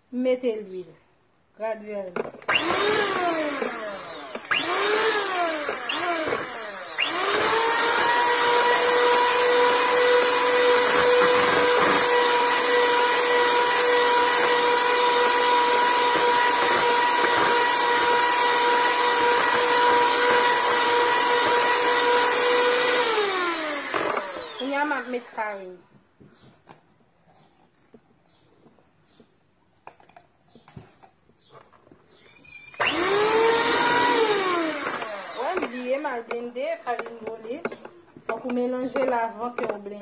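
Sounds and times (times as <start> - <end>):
electric hand mixer whining: 2.5 - 25.6, 32.5 - 36.4.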